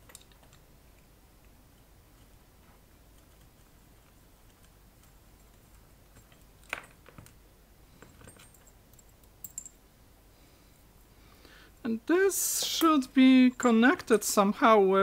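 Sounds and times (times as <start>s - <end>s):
metal parts clicking and knocking: 3.2s - 7.4s, 8.0s - 9.8s.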